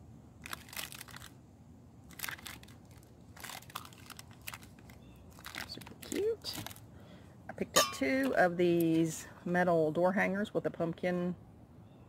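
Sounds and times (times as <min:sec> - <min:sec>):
plastic shrink-wrap crinkling: 0:00.4 - 0:01.4, 0:02.0 - 0:06.9.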